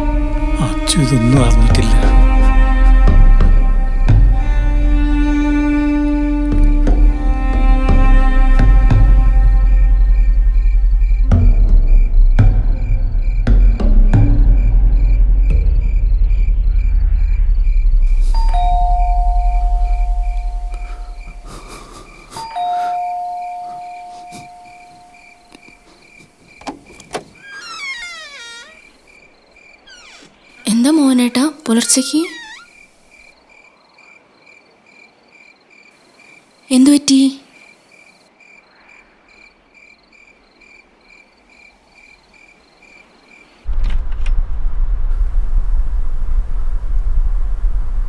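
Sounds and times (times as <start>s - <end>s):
crickets chirping: 0.0s - 48.0s
two-note doorbell chime: 18.4s - 20.7s, 22.4s - 25.3s
door creaking open: 26.5s - 29.1s, 29.8s - 30.7s, 32.2s - 32.8s, 43.7s - 44.6s.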